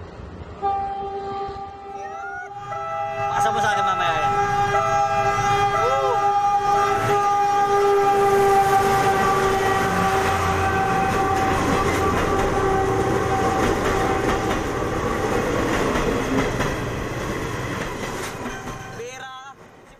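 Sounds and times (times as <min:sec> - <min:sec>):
locomotive engine rumbling: 0:00.0 - 0:19.2
train horn: 0:00.6 - 0:14.7
train wheels clattering: 0:08.7 - 0:19.9.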